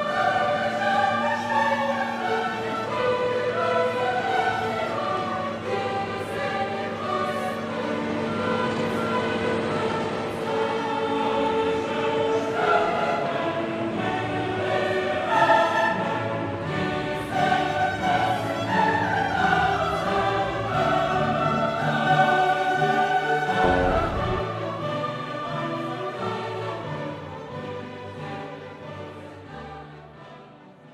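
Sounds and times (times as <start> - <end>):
choir singing held notes: 0.0 - 27.2
orchestral accompaniment: 23.6 - 24.8.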